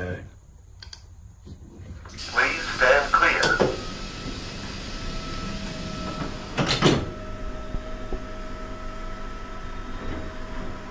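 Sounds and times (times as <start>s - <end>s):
steady hum: 1.8s - 9.7s
train doors sliding shut: 2.0s - 7.2s.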